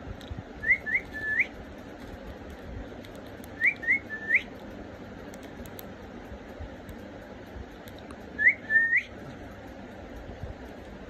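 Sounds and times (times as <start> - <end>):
steady low hiss: 0.0 - 11.0
rising whistled notes: 8.4 - 9.1.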